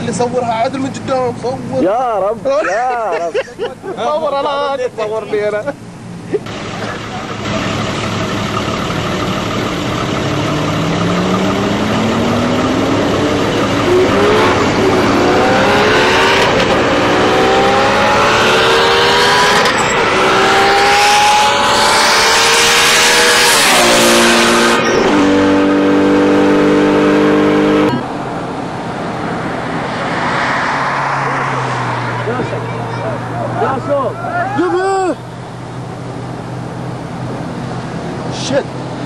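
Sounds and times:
vehicle engine accelerating: 6.4s - 28.1s.

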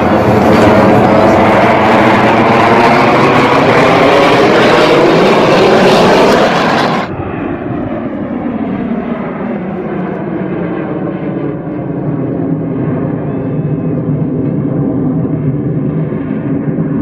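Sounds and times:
aircraft engine roar overhead: 0.0s - 17.0s
jets duller engine sound: 0.0s - 17.0s.

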